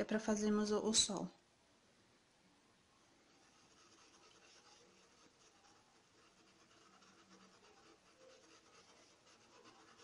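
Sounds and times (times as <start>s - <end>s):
paintbrush scratching on fabric: 3.3s - 10.0s.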